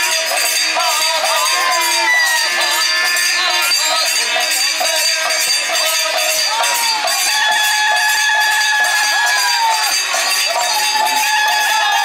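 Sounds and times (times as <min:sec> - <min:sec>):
harmonium chords: 0:00.0 - 0:07.2
hand cymbals clashing: 0:00.0 - 0:12.0.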